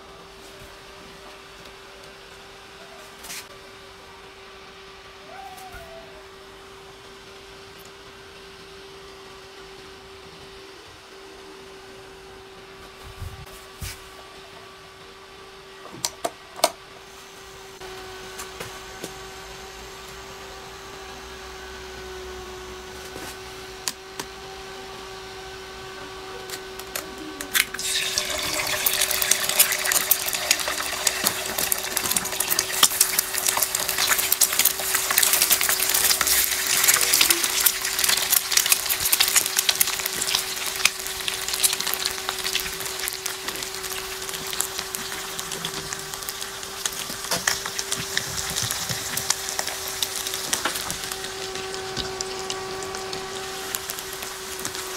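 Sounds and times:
circuit and cooling fan hum: 0.0s - 54.9s
egg sizzling in hot oil: 27.5s - 54.9s.

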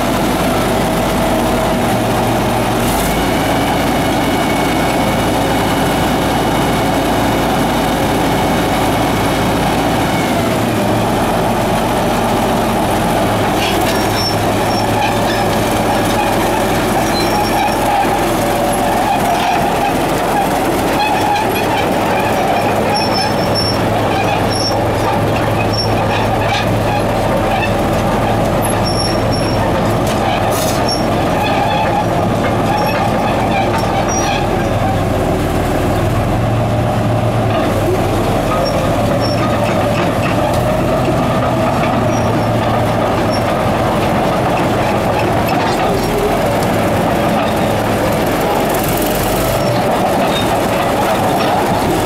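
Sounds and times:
diesel engine idling: 0.0s - 52.0s
steel tracks clattering: 10.4s - 35.3s, 37.6s - 52.0s
high track squeaks: 11.8s - 35.4s, 37.5s - 52.0s.

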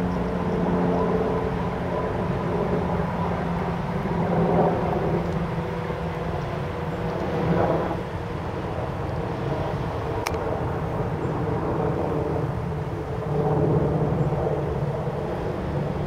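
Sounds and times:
road traffic hum: 0.0s - 16.0s.

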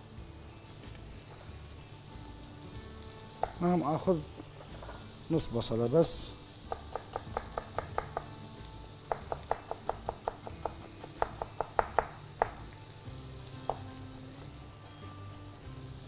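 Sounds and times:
butter and oil sizzling in pan: 0.0s - 16.0s
knife chopping onion on board: 3.4s - 3.7s, 6.6s - 8.4s, 9.0s - 12.7s, 13.6s - 13.9s.

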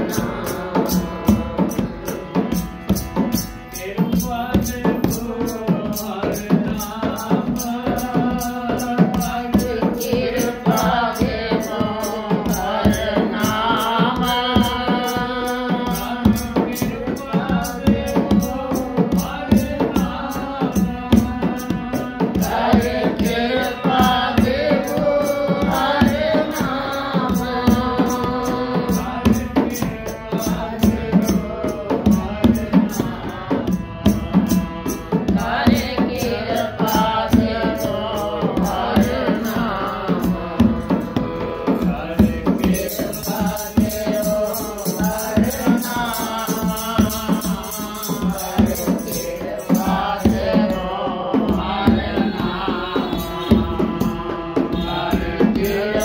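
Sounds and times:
harmonium playing: 0.0s - 9.5s, 23.4s - 42.2s
hand drum beat: 0.0s - 56.0s
person singing devotional chant: 0.0s - 56.0s.

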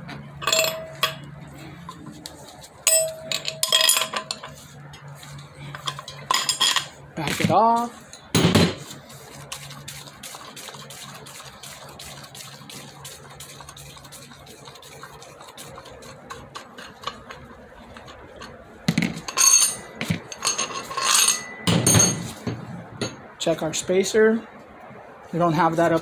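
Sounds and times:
metal clanks: 0.4s - 1.3s, 16.6s - 23.2s
metal plates clattering: 2.9s - 4.6s, 16.4s - 22.4s.

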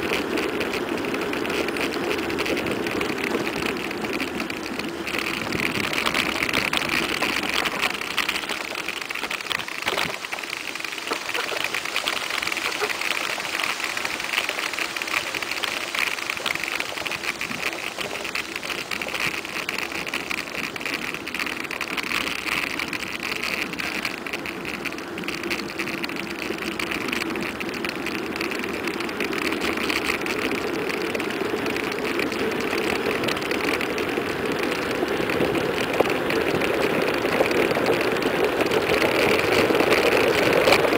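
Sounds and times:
wind on microphone: 0.0s - 21.0s
bike tyres on asphalt: 0.0s - 40.9s.

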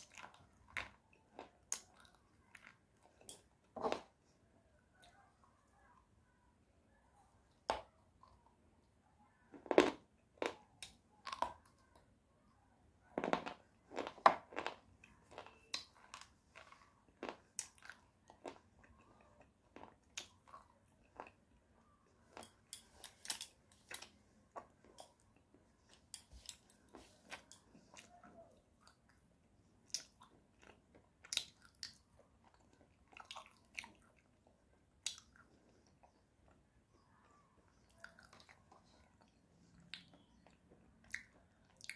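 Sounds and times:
biting and chewing clay crunches: 13.1s - 28.2s.

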